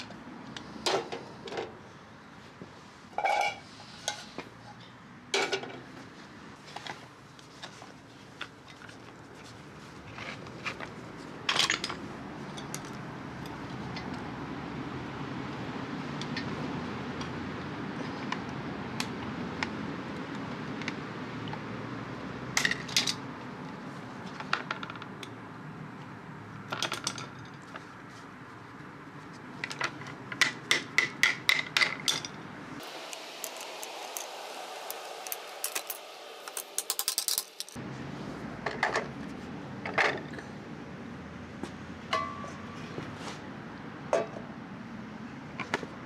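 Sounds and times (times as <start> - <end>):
steady low background noise: 0.0 - 46.0
lead pieces clinking: 33.4 - 37.8.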